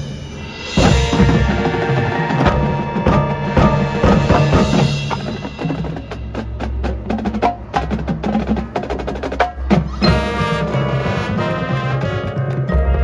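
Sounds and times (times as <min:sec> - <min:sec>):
sharp mallet and drum strikes: 0:00.0 - 0:07.8, 0:09.5 - 0:12.0
marching band music: 0:00.0 - 0:13.0.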